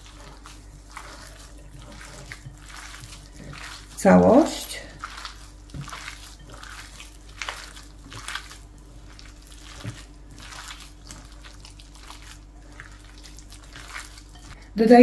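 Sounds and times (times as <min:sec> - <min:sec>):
hands kneading wet meat: 0:00.0 - 0:15.0.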